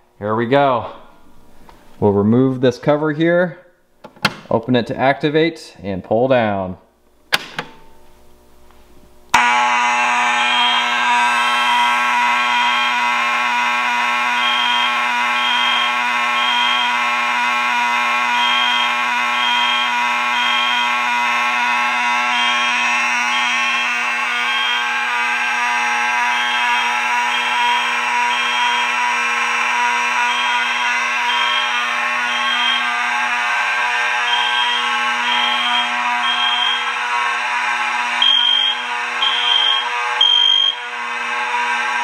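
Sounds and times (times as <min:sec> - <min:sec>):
fire alarm horn buzzing: 0:00.9 - 0:01.9, 0:09.3 - 0:42.0
short high alarm beeps: 0:10.4 - 0:13.1, 0:14.3 - 0:17.0, 0:18.3 - 0:21.0, 0:24.4 - 0:24.9, 0:30.3 - 0:33.0, 0:34.3 - 0:37.0, 0:38.2 - 0:40.8.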